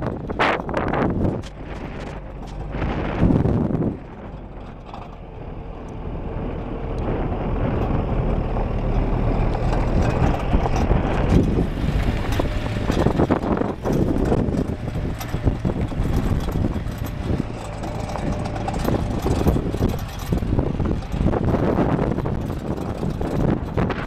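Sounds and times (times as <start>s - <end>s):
jeep engine droning: 0.0s - 24.0s
wind buffeting microphone: 0.0s - 24.0s.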